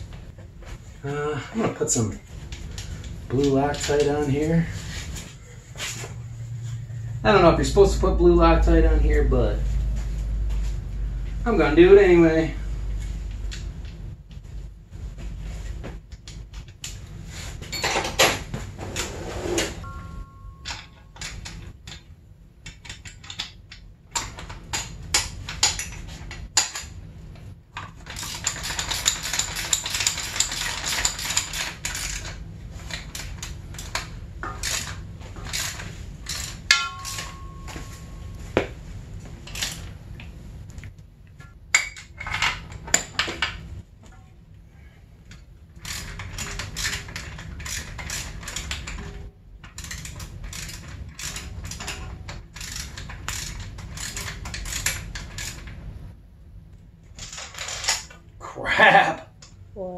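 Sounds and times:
metal hand tools clinking: 35.5 - 37.9
socket wrench ratcheting: 49.8 - 55.6.

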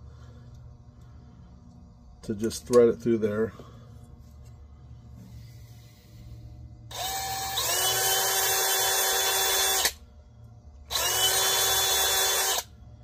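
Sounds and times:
cordless drill drilling metal: 6.9 - 10.0, 10.9 - 12.7.

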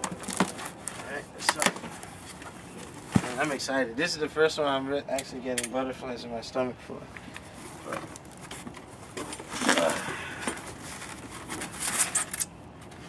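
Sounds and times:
cardboard box being opened: 0.0 - 3.6, 7.5 - 12.4.

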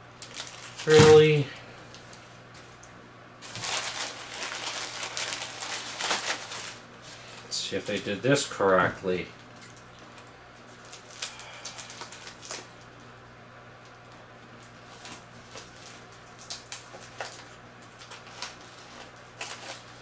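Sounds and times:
steady low hum: 0.0 - 20.0
plastic packaging rustling: 0.2 - 2.8, 3.4 - 12.9, 14.6 - 20.0.

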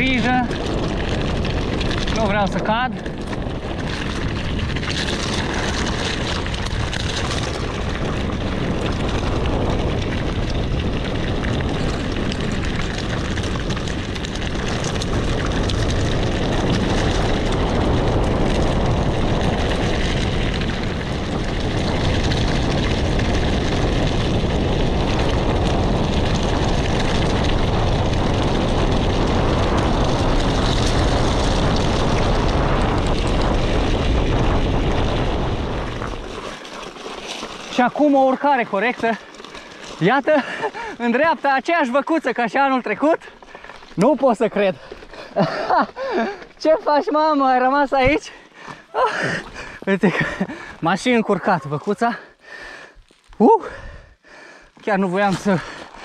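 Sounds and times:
wind rushing over microphone: 0.0 - 36.6, 53.5 - 54.3
bike tyres rumbling over gravel: 0.0 - 56.0.

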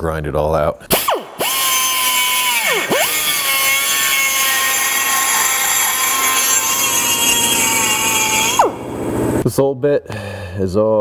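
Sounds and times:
die grinder grinding metal: 1.0 - 9.0.

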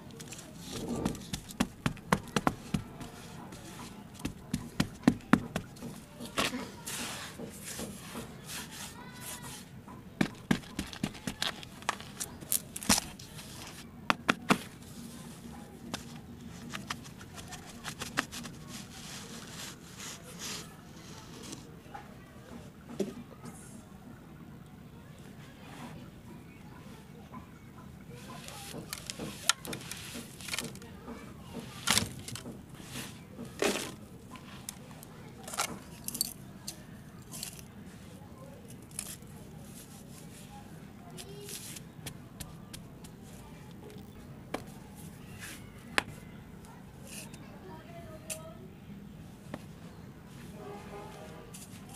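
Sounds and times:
dry soil crumbling and falling: 0.1 - 7.0, 10.2 - 14.9
sharp taps and pats: 1.0 - 6.4, 10.2 - 11.9, 14.1 - 14.8, 42.0 - 43.2.

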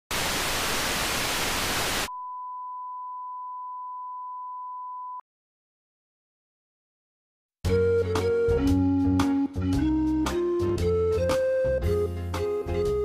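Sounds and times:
television static hiss: 0.1 - 2.1
steady single-pitch beep: 2.1 - 5.2.

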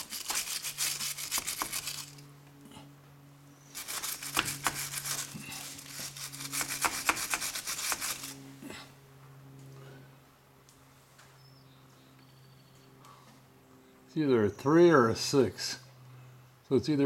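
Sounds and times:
wire brush scrubbing metal: 0.0 - 2.2, 3.7 - 8.4.

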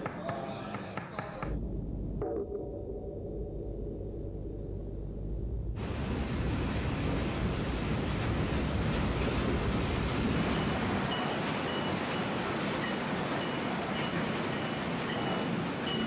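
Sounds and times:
deep rumble: 1.4 - 10.5
steelworks roar: 1.4 - 16.0.

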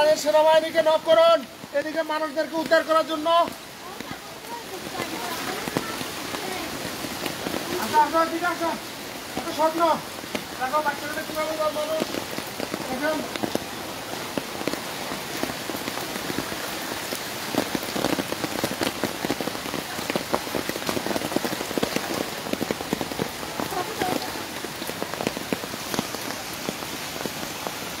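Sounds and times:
water splashing on floodwater: 0.0 - 28.0.

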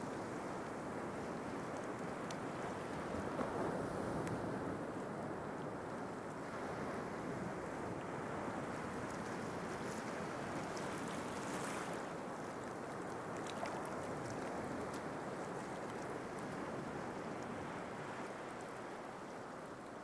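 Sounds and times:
faint splashing crackles: 8.5 - 20.0.

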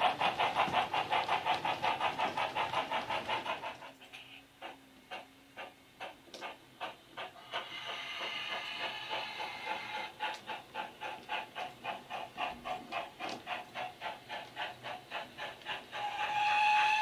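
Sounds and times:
steam hiss: 0.0 - 17.0
steam locomotive exhaust chuffs: 0.0 - 17.0
steam whistle: 16.0 - 17.0.

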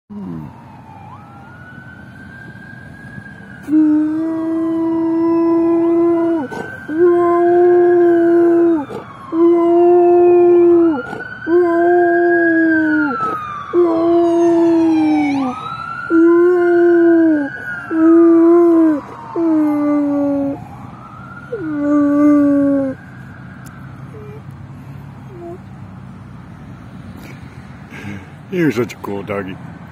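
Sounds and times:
siren wailing: 0.1 - 25.7
dog howling: 3.7 - 20.6, 21.5 - 23.0.

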